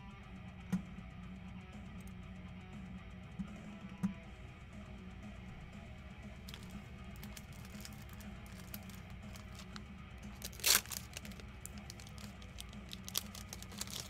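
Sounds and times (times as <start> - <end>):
faint background music: 0.0 - 14.0
loud packaging tear: 6.5 - 9.8, 10.4 - 14.0
packaging crinkling: 6.5 - 9.8, 10.4 - 14.0.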